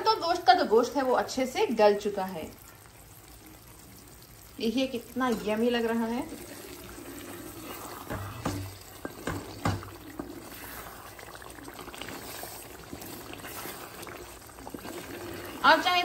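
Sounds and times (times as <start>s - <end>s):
soft wet stirring: 2.6s - 16.0s
spatula knocking against pot: 8.1s - 10.0s.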